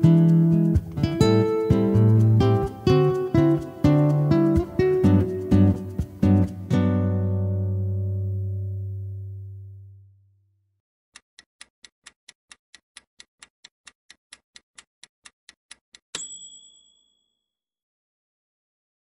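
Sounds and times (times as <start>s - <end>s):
countdown timer ticking: 0.0s - 6.8s
acoustic guitar music: 0.0s - 10.0s
bright bell ding: 16.2s - 17.5s.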